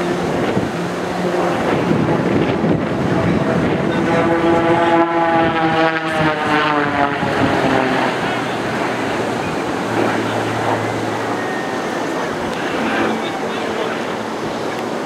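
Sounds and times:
propeller plane engine droning: 0.0s - 15.0s
wind buffeting microphone: 0.0s - 15.0s.

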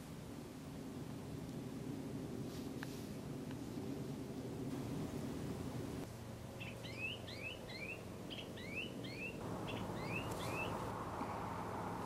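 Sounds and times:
background hiss: 0.0s - 12.0s
plovers calling: 6.6s - 11.4s.

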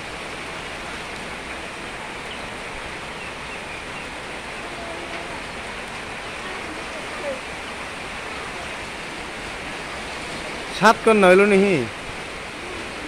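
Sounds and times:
flock of chickens murmuring: 3.2s - 9.4s.

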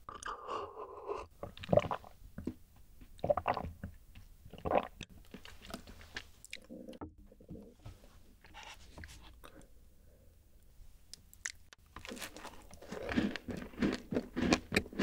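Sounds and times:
loud gulps: 0.0s - 2.5s.

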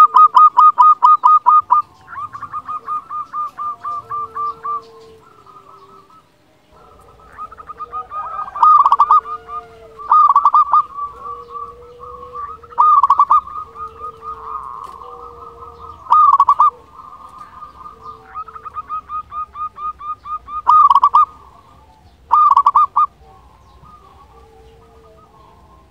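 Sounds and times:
dove cooing: 0.0s - 25.9s.

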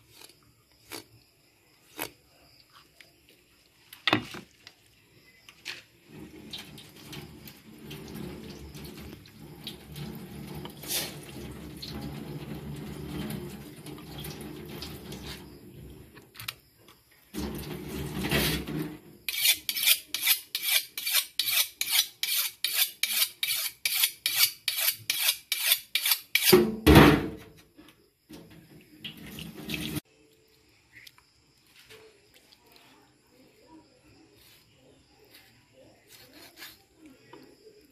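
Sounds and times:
tap water running into sink: 6.2s - 15.5s, 17.4s - 18.8s, 28.3s - 30.0s
knife scraping fish scales: 17.8s - 26.6s, 36.1s - 37.0s.

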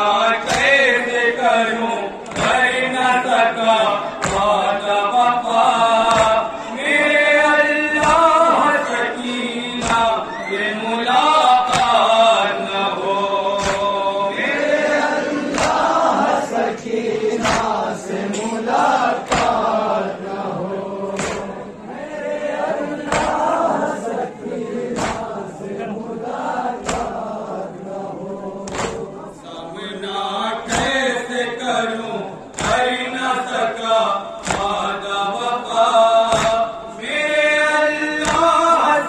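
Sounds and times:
group of men chanting: 0.0s - 39.0s
man chanting through loudspeaker: 0.0s - 39.0s
chest beating slaps: 4.2s - 4.6s, 9.8s - 10.2s, 11.6s - 12.2s, 13.5s - 14.1s, 15.4s - 16.1s, 17.3s - 17.9s, 19.2s - 19.8s, 21.0s - 21.7s, 23.0s - 23.6s, 24.9s - 25.5s, 26.8s - 27.3s, 28.6s - 29.1s, 32.5s - 33.0s, 34.4s - 34.9s.

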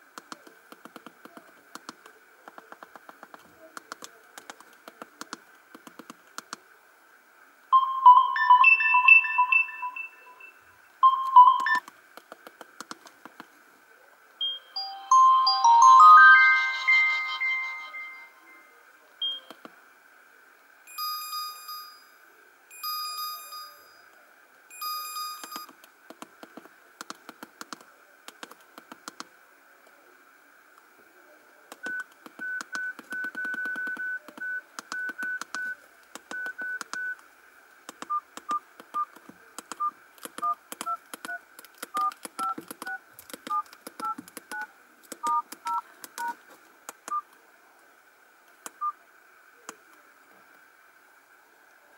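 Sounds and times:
phone keypad beeps: 7.8s - 11.8s, 14.4s - 18.1s, 19.2s - 19.6s, 31.8s - 37.2s, 42.0s - 46.4s
phone ringtone: 7.8s - 11.8s, 14.4s - 19.5s.

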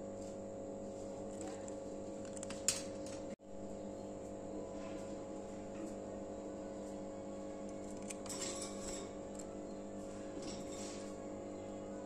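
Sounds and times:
steady low hum: 0.0s - 12.0s
faint scratches in cage: 10.1s - 11.2s.

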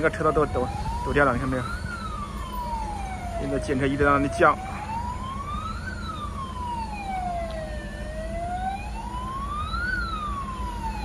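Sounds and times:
emergency siren wailing: 0.0s - 11.0s.

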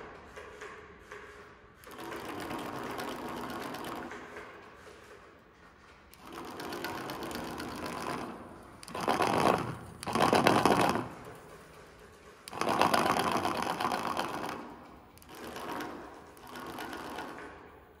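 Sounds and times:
fast buzzing paper rattle: 6.2s - 17.6s.

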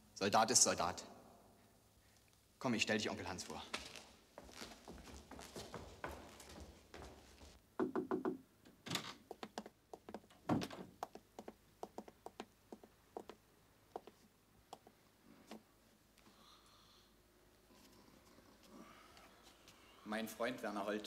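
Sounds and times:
footsteps on stairs and hard floor: 3.4s - 7.6s.

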